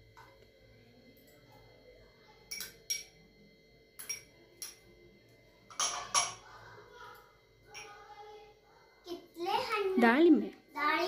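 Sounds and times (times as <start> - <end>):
metal spoon clinking on steel bowl: 2.5 - 3.2, 4.0 - 4.8, 5.7 - 6.5, 7.7 - 8.0.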